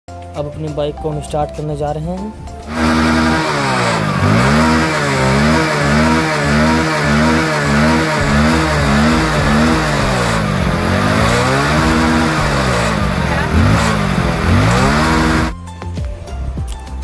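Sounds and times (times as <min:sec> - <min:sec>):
motorcycle engine surging: 0:02.6 - 0:15.6.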